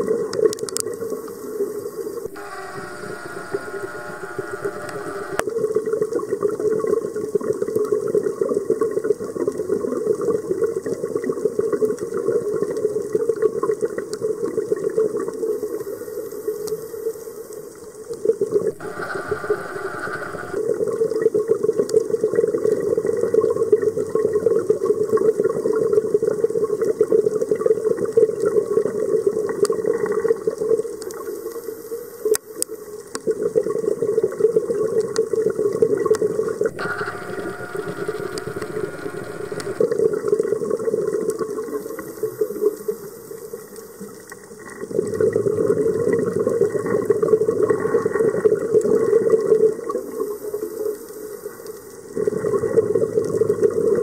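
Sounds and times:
exhaled bubbles underwater: 44.6s - 50.0s, 52.1s - 54.0s.

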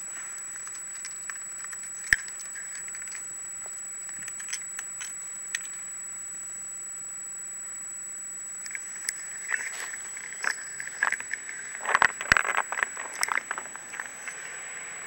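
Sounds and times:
steady hiss with high whine: 0.0s - 15.0s.

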